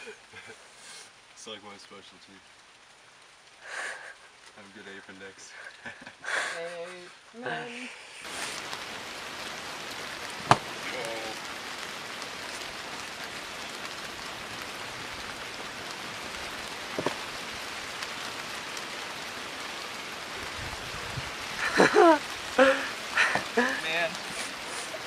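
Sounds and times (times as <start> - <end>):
steady rain: 0.0 - 25.0
sharp tap: 10.5 - 10.7.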